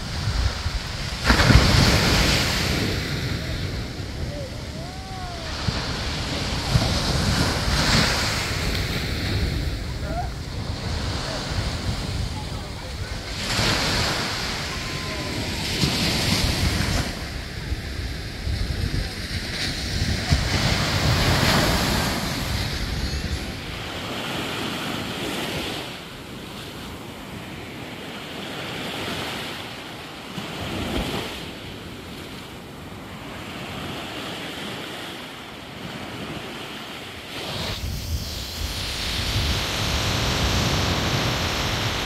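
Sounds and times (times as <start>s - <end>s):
wind buffeting microphone: 0.0s - 26.4s, 37.4s - 42.0s
surf washing up a beach: 0.0s - 42.0s.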